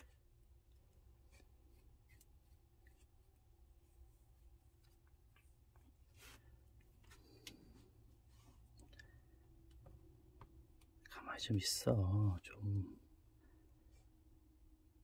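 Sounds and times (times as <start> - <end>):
comb strokes through fur: 1.2 - 8.7.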